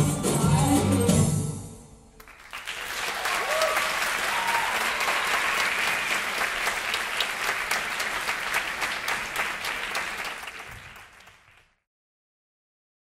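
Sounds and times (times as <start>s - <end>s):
audience applauding: 2.2s - 11.8s.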